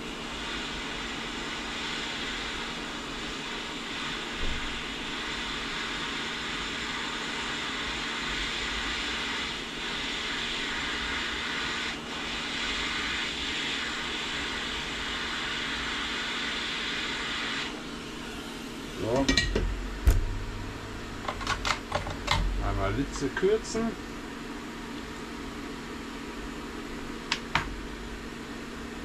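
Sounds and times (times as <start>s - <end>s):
faint motor hum: 0.0s - 29.0s
hot air gun blowing: 0.6s - 19.3s.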